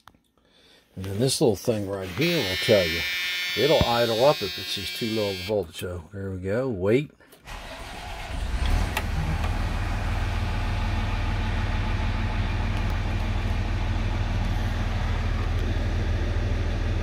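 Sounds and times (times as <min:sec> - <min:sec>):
diesel engine idling: 0:07.5 - 0:17.0.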